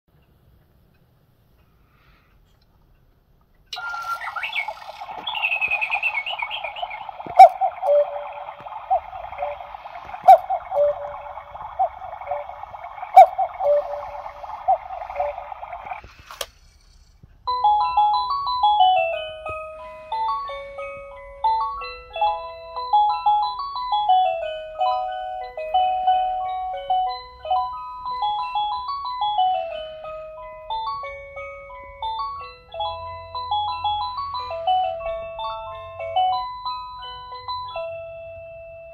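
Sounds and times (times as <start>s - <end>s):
recorded birdsong: 3.7s - 16.4s
cuckoo calls: 3.7s - 16.5s
electronic bell-like melody: 3.8s - 16.0s, 17.5s - 38.9s.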